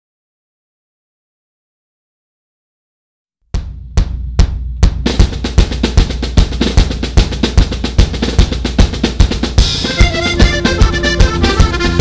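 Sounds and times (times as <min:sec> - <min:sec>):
fast drum beat: 0:03.6 - 0:12.0.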